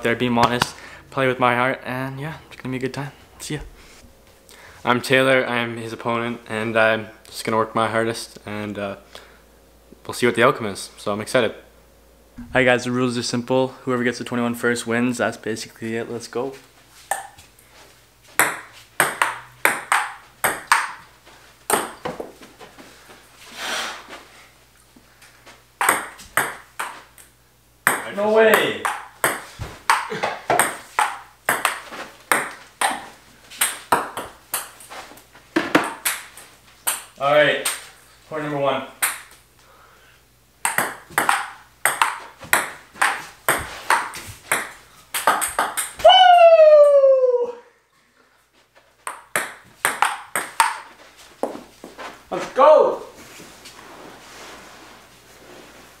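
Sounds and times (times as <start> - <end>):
ping pong ball rally: 17.1 - 17.4, 18.4 - 21.1, 21.7 - 22.2, 25.8 - 34.8, 35.6 - 37.9, 39.0 - 39.3, 40.6 - 47.1, 49.1 - 50.9.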